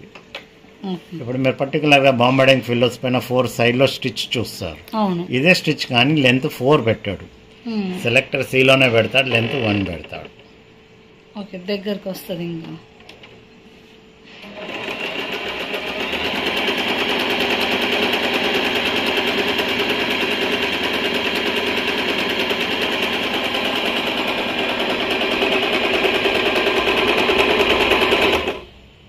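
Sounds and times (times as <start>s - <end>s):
sewing machine stitching: 8.5s - 10.4s, 14.3s - 28.8s.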